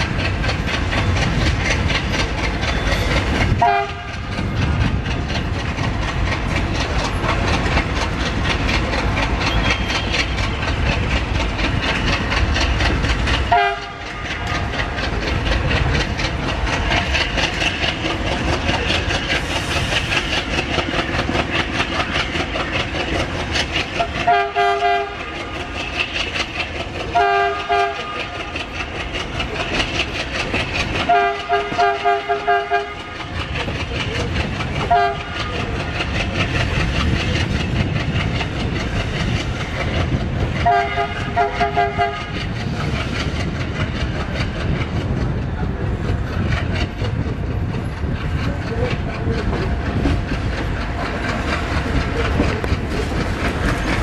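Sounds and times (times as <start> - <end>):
train running noise: 0.0 - 54.0
diesel locomotive horn blasts: 3.5 - 4.3, 13.5 - 14.2, 24.0 - 25.3, 27.1 - 28.2, 31.0 - 33.1, 34.8 - 35.4, 40.6 - 42.4.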